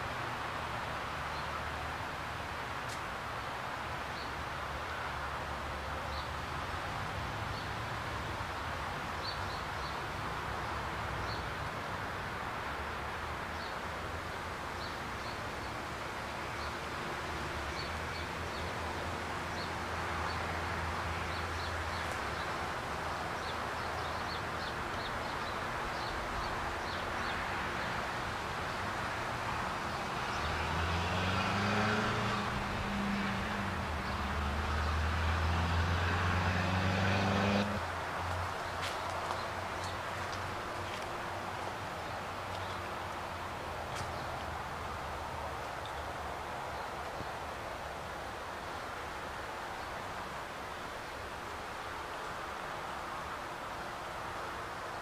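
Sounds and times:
road traffic: 0.0s - 55.0s
vehicle passing: 27.5s - 45.6s.

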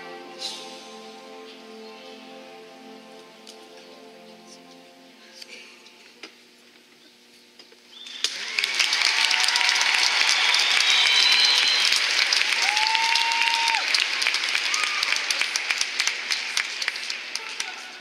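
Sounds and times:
crowd cheering and whistling: 7.9s - 15.4s
crowd clapping: 8.0s - 18.0s.

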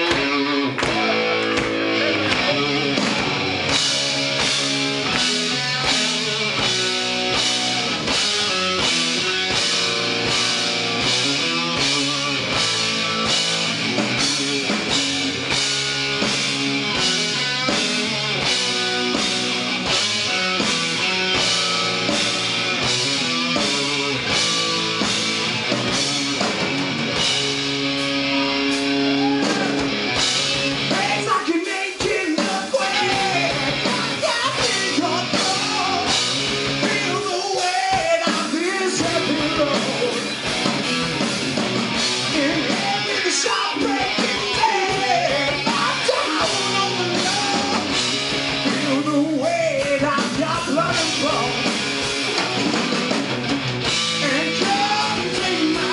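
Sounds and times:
live rock band playing: 0.0s - 55.9s
person singing: 30.9s - 36.2s, 36.8s - 40.3s, 42.2s - 48.0s, 48.7s - 51.6s, 54.2s - 55.9s.

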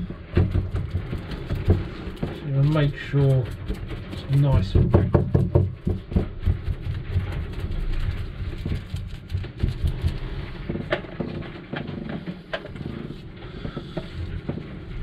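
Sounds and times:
low steady rumble: 0.0s - 15.0s
paintbrush dabbing resin: 0.6s - 10.8s.

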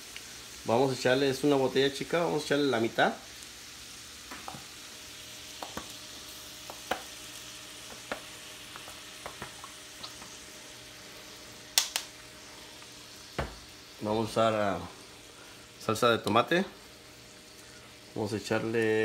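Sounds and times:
shrimp sizzling in a skillet: 0.0s - 19.0s
pops and crackles: 5.5s - 6.0s, 6.6s - 7.1s, 7.9s - 10.4s, 11.7s - 12.2s.

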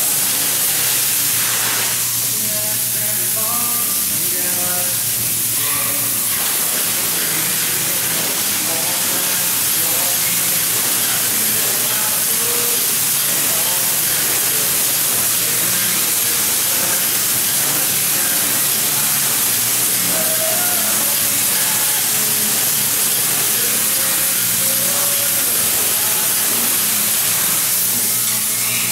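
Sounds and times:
spray foam gun hissing: 0.0s - 28.9s.

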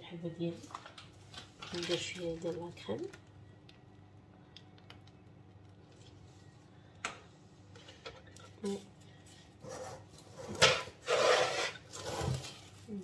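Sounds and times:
plastic cling film rustling: 0.5s - 3.2s, 11.4s - 13.0s.

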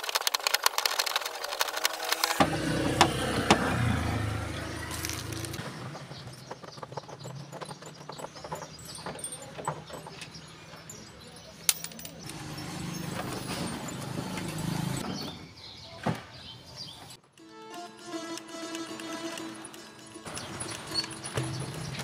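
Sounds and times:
small rattles: 0.0s - 3.7s, 4.8s - 14.7s.

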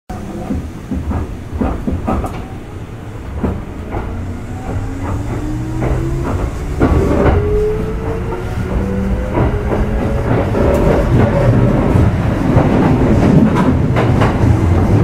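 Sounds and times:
train traction motor whine: 2.6s - 11.9s
wheels clicking and clunking: 3.2s - 15.0s.

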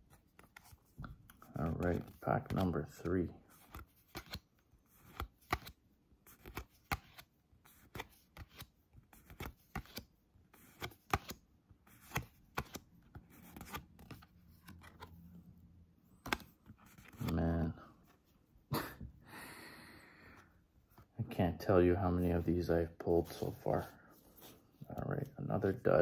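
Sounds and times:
trading cards flipped by hand: 0.1s - 15.3s, 16.1s - 17.4s, 23.2s - 25.1s.

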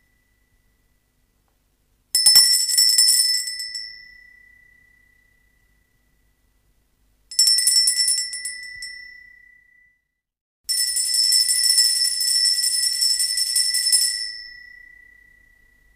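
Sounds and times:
shop doorbell ringing: 7.3s - 10.0s, 10.7s - 15.8s.

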